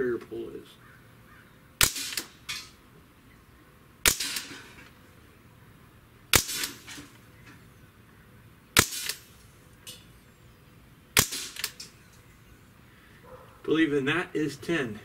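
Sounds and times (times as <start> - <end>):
air rifle shots: 1.8 - 2.8, 4.0 - 4.9, 6.3 - 7.1, 8.8 - 9.4, 11.1 - 12.0.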